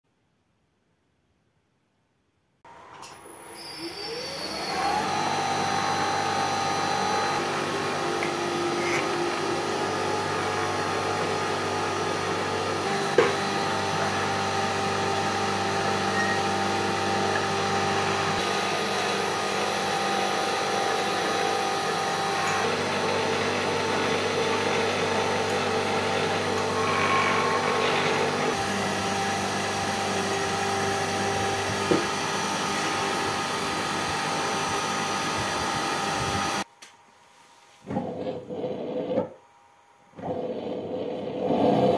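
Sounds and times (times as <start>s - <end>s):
roller machine humming: 3.8s - 33.2s.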